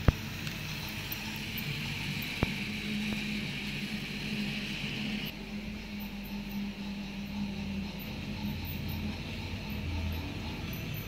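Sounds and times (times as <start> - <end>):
toy train motor whirring: 0.0 - 5.4.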